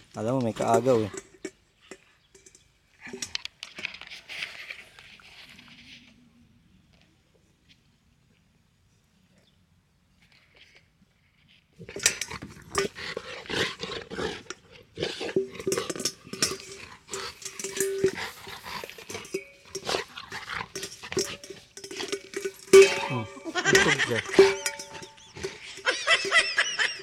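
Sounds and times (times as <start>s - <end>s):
dog rattling metal bowl: 0.0s - 3.4s, 11.8s - 27.0s.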